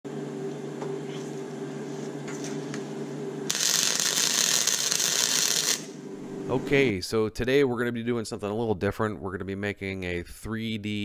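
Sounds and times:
welder humming: 0:00.1 - 0:06.9
welding arc crackling: 0:03.5 - 0:06.0.

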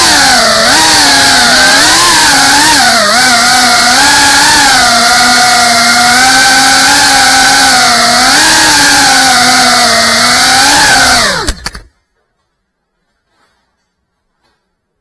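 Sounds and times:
drone motors whining: 0:00.0 - 0:11.9
sharp clicks: 0:11.2 - 0:11.9.

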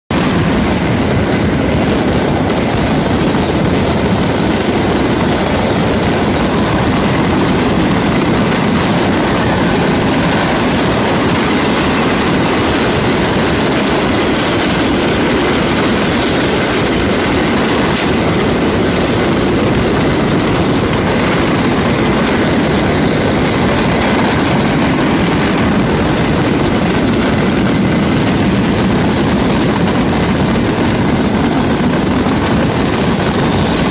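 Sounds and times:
fireworks barrage: 0:00.1 - 0:33.9.

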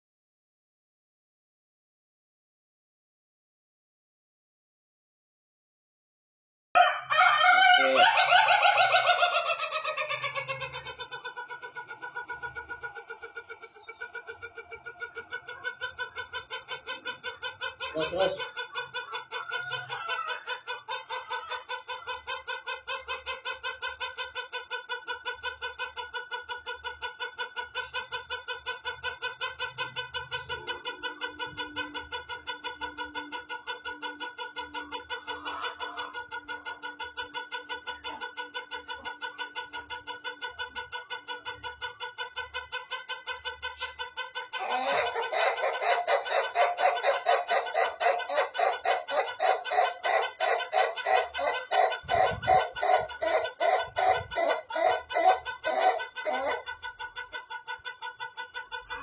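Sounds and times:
rooster crowing: 0:06.8 - 0:09.6, 0:19.4 - 0:20.6, 0:44.6 - 0:56.6.

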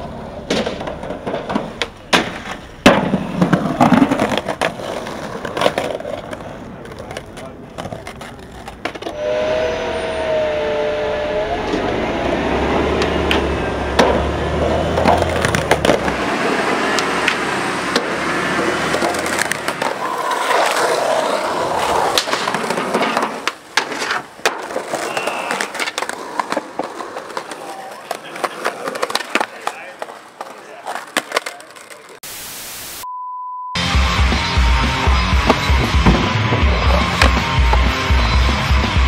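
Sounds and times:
skateboard clacks: 0:00.0 - 0:09.2, 0:13.0 - 0:32.2, 0:35.4 - 0:38.4
skateboard wheels rolling on concrete: 0:00.0 - 0:32.3, 0:33.8 - 0:39.0.

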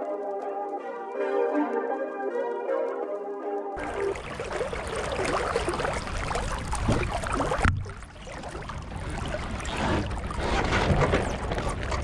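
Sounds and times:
water rushing along hull: 0:03.8 - 0:12.0
wind buffeting microphone: 0:03.8 - 0:12.0.

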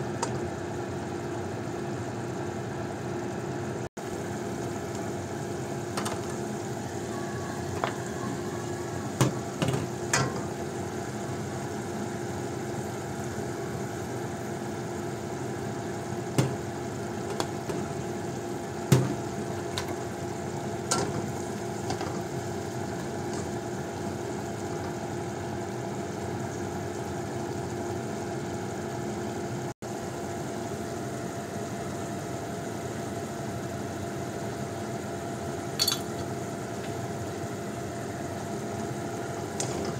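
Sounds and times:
beans simmering: 0:04.0 - 0:39.9
spatula clinking on wok: 0:35.8 - 0:36.3.

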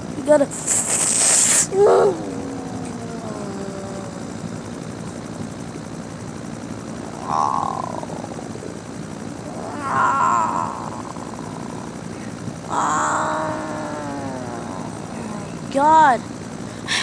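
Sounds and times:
monster roaring: 0:01.7 - 0:04.3, 0:07.1 - 0:08.8, 0:09.4 - 0:12.0, 0:12.7 - 0:15.4.

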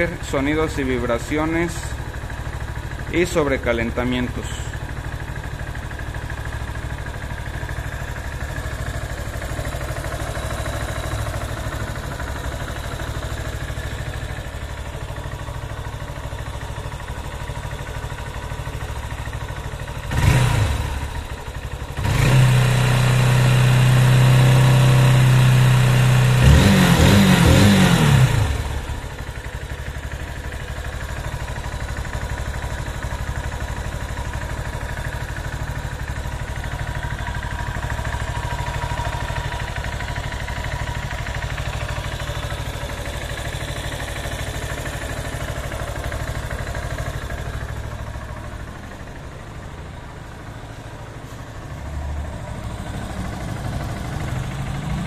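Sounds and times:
motorcycle engine idling: 0:00.0 - 0:55.0
engine revving: 0:20.1 - 0:21.1, 0:22.0 - 0:28.9, 0:51.9 - 0:55.0.

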